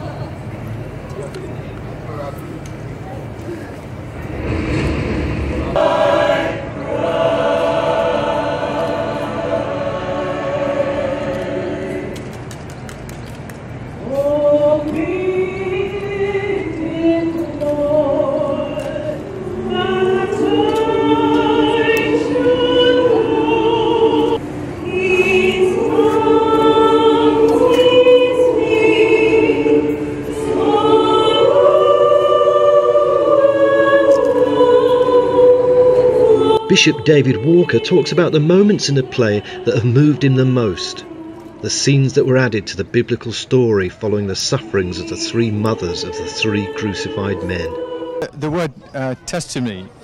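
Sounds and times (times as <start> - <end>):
choir singing slow chords: 4.0 - 12.4, 14.0 - 48.3
singers breathing: 39.4 - 39.7.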